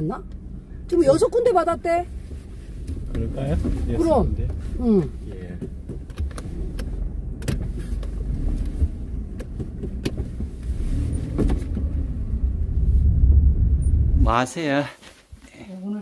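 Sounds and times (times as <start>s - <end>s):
car engine and road rumble: 0.0s - 16.0s
knocks and rattles: 5.4s - 12.0s.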